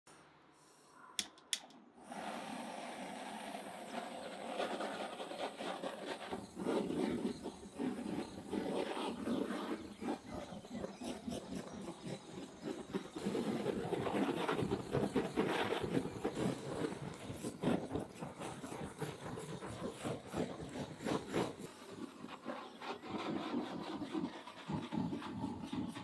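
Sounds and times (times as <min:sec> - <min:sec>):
torch igniter clicks: 0:01.2 - 0:01.8.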